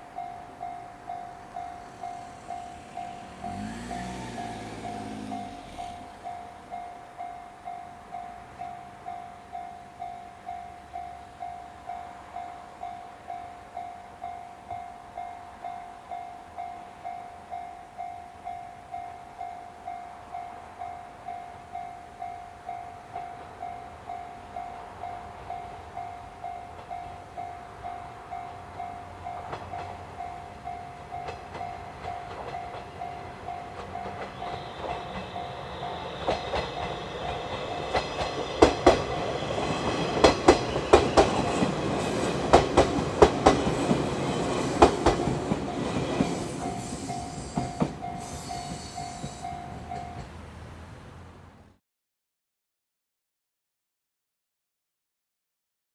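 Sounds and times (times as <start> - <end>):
train running noise: 0.0 - 18.0, 18.9 - 51.5
train wheels clicking on rail joints: 0.4 - 8.8, 24.7 - 50.5.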